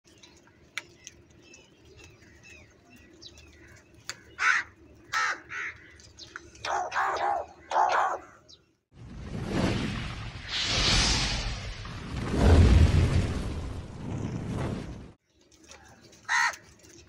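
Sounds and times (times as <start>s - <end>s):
crows cawing: 3.6s - 6.1s, 16.3s - 16.7s.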